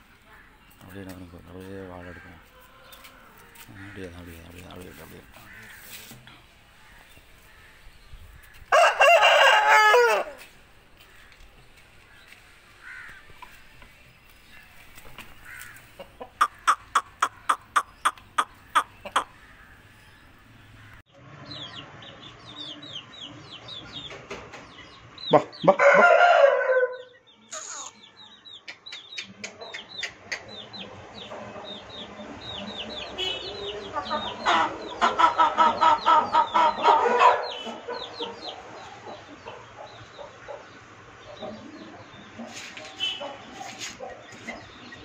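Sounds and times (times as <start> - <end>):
rooster crowing: 8.7 - 10.5, 25.7 - 27.1
high chirping: 16.2 - 20.4
chicken pulsing call: 16.4 - 19.4.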